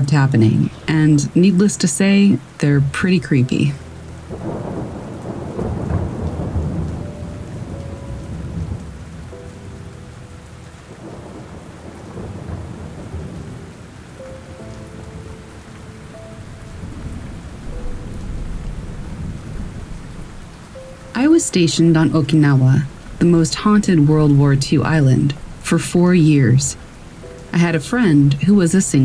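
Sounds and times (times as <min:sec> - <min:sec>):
steady rain: 0:00.0 - 0:29.0
low rolling thunder: 0:04.0 - 0:25.7.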